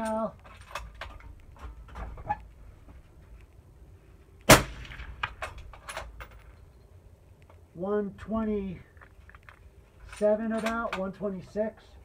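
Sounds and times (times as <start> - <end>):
suppressed rifle shot: 4.4 - 5.5.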